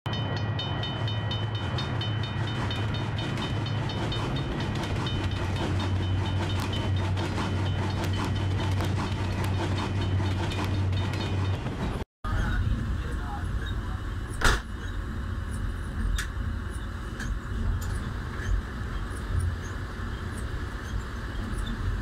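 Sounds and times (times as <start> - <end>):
high pulsing ringing: 0.1 - 11.6
train rumble: 0.1 - 22.0
wheels clicking over rail joints: 0.2 - 22.0.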